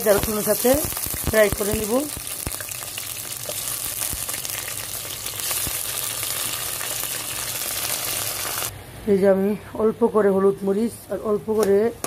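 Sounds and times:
prawns sizzling in hot oil: 0.0s - 8.7s.

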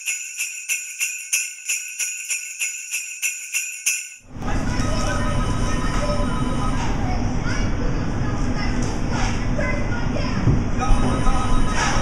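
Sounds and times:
jingle bells shaken: 0.0s - 5.8s.

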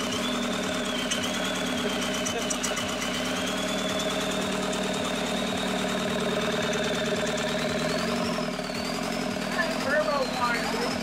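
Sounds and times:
diesel engine idling with knock: 0.0s - 11.0s.

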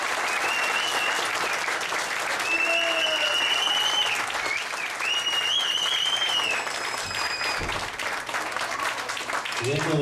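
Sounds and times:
audience applauding: 0.0s - 10.0s
high wavering whistle: 2.5s - 7.7s.

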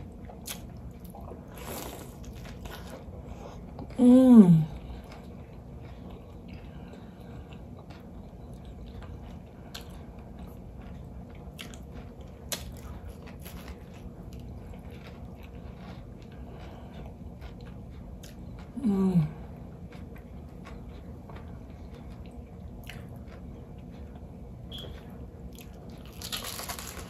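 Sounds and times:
chewing and crunching fried fish: 0.0s - 4.0s, 4.7s - 18.8s, 19.4s - 27.0s
person humming mmm: 3.9s - 4.8s, 18.7s - 19.5s.

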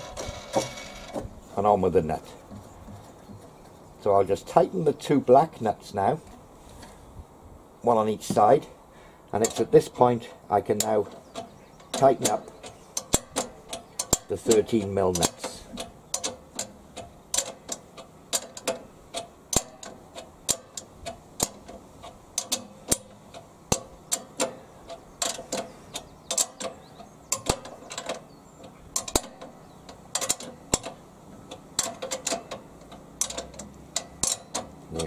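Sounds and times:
ratcheting spanner clicking: 10.8s - 35.0s.

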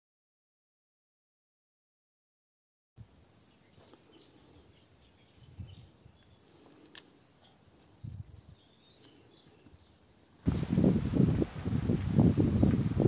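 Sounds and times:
faint outdoor background: 3.0s - 13.0s.

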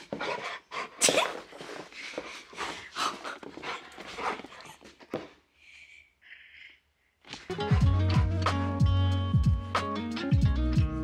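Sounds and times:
dog panting hard: 0.0s - 5.0s.

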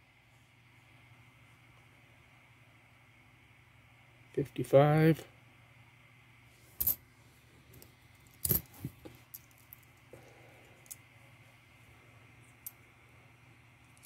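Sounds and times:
coins clicking on table: 6.8s - 7.0s, 8.4s - 8.7s.

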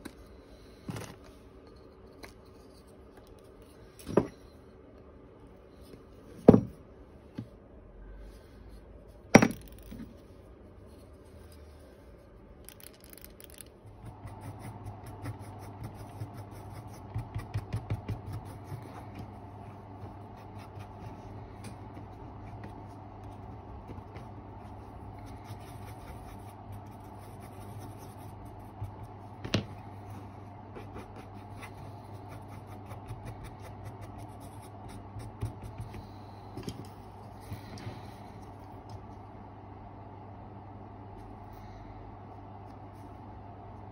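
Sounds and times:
steady low hum: 0.0s - 43.9s
hard objects knocking on workbench: 6.4s - 6.8s.

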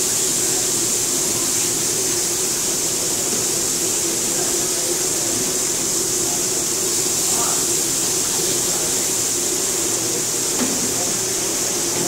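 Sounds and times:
gas burners hissing: 0.0s - 12.0s
oil frying on griddle: 0.0s - 12.0s.

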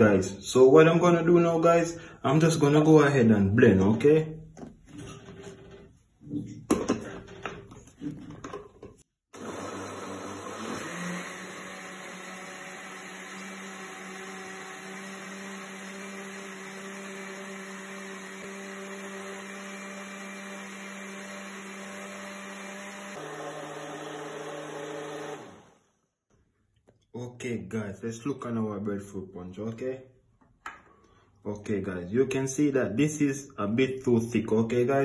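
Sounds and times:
blender motor running: 9.3s - 25.9s.

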